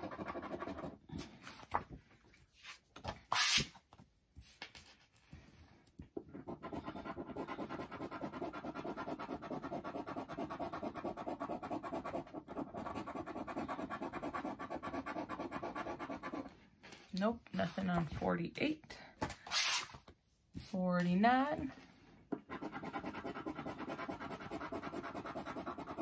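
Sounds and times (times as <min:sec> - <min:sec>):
scratching lottery ticket: 0:22.6 - 0:26.0.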